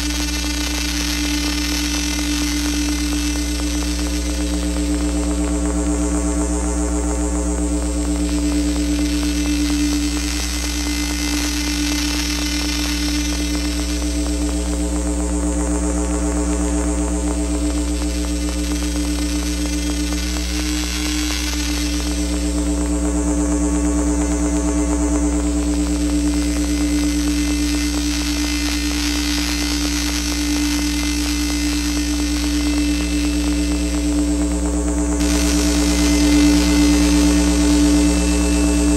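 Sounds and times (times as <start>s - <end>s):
crackling glitch texture: 0.0s - 38.9s
low hum: 0.0s - 38.9s
synthesizer drone: 0.0s - 38.9s
high hiss: 35.2s - 38.9s.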